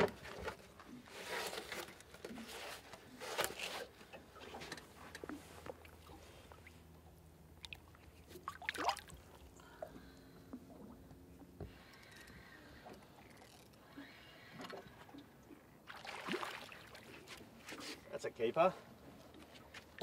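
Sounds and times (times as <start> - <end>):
soft splash in water: 15.9 - 17.1.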